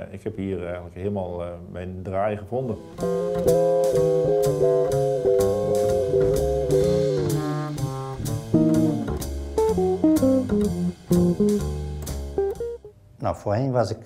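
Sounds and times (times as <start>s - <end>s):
downward runs of notes: 2.7s - 12.9s
steady drum beat: 2.8s - 12.8s
sustained chords: 2.8s - 12.8s.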